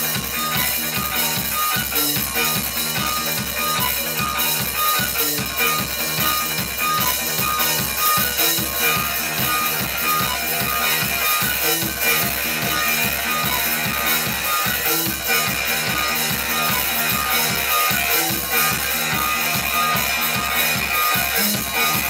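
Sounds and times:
live rock band playing: 0.0 - 22.0.

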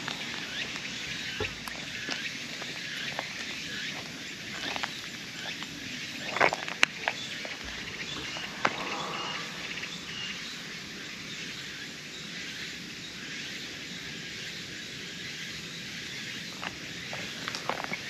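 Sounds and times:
insects droning: 0.0 - 18.0
bird chirps: 7.1 - 11.8.

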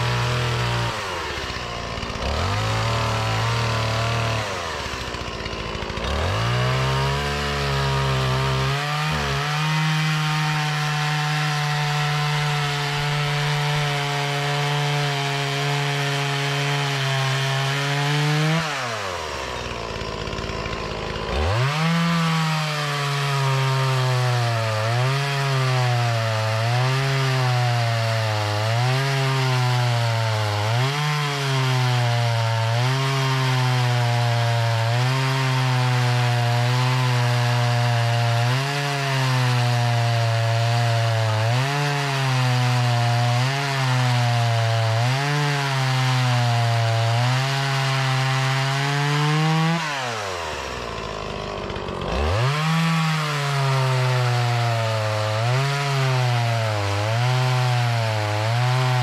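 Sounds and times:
chainsaw cutting a log: 0.0 - 59.0.

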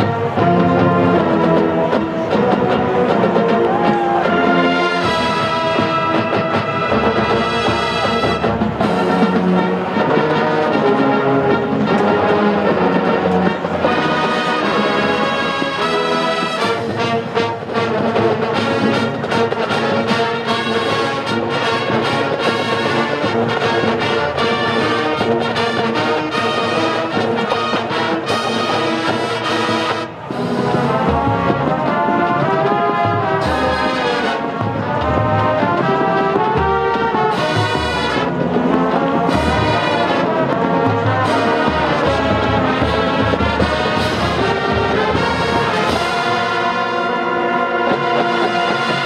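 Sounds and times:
marching band playing: 0.0 - 49.0.

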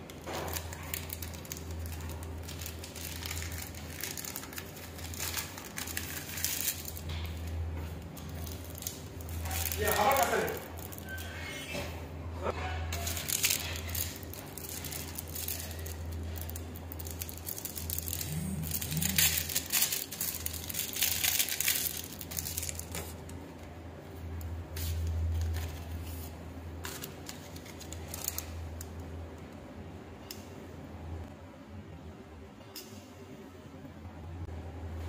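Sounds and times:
plastic packaging crinkling: 0.0 - 11.2, 12.9 - 23.4, 24.8 - 29.0.

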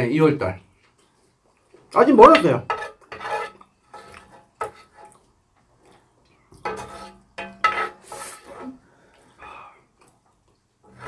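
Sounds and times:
chewing: 0.7 - 2.0, 5.0 - 6.6, 9.9 - 10.9
spoons on dishes: 2.2 - 5.2, 6.6 - 8.7.

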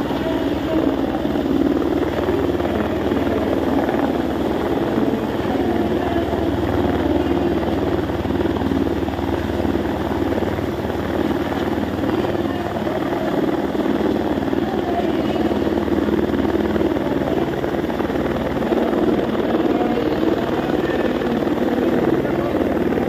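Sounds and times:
helicopter rotor beating: 0.0 - 23.0.

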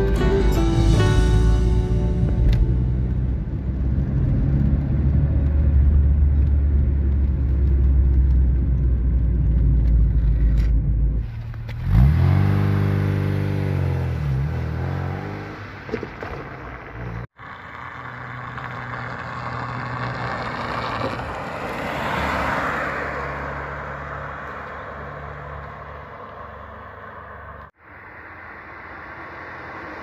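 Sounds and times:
car engine and road noise: 0.0 - 30.0
car accelerating past: 11.2 - 27.7.

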